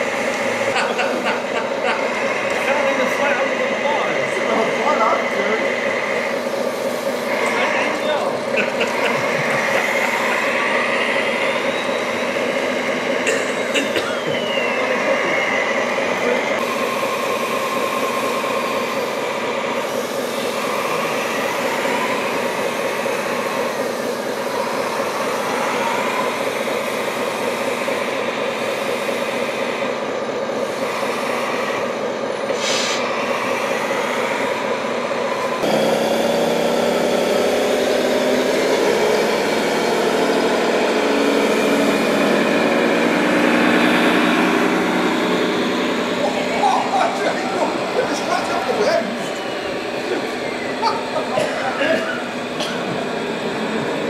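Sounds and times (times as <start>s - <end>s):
model truck motors whining: 0.0s - 54.0s.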